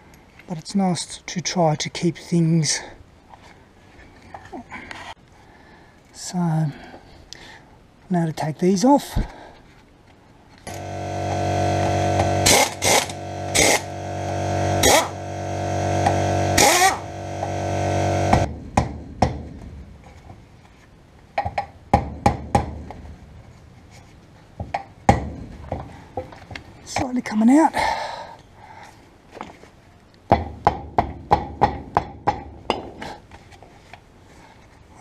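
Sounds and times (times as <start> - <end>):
loud low machine hum: 10.7 - 18.5.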